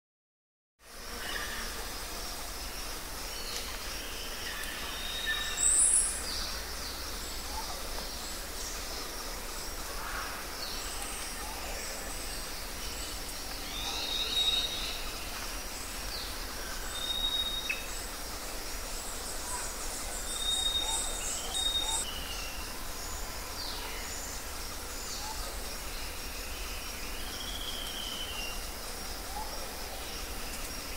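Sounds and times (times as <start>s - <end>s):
outdoor ambience hiss: 0.8s - 30.9s
birds whistling and chirping: 20.3s - 22.5s.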